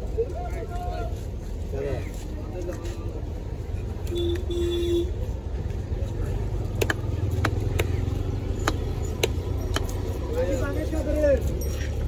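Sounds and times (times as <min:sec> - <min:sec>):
street traffic rumble: 0:00.0 - 0:12.0
vehicle horn toots: 0:04.1 - 0:05.2
cleaver striking chopping block: 0:06.8 - 0:08.0, 0:08.6 - 0:09.9.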